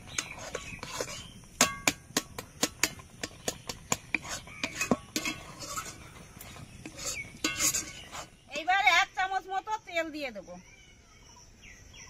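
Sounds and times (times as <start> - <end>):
soft scraping in pot: 0.0 - 9.0
utensil knocking against pot: 1.6 - 5.4.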